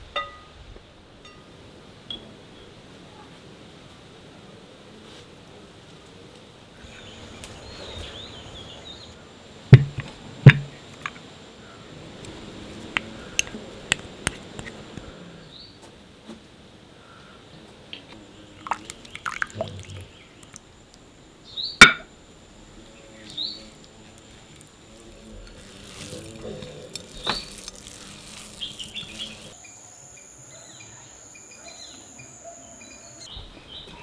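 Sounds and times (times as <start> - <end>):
sharp knock: 9.8 - 10.8
liquid sounds: 18.4 - 21.1, 23.7 - 29.6.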